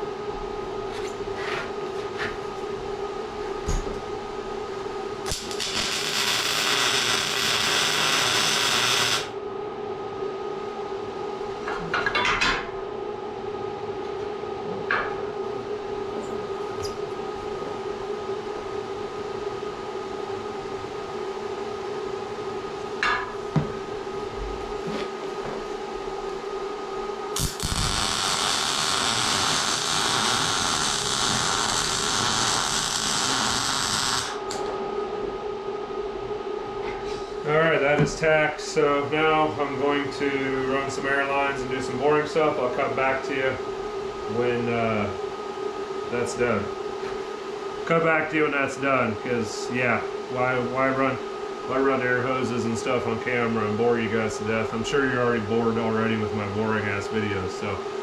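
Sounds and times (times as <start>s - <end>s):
steady hum: 0.0s - 58.0s
welder crackling hiss: 5.3s - 9.3s, 27.4s - 34.6s.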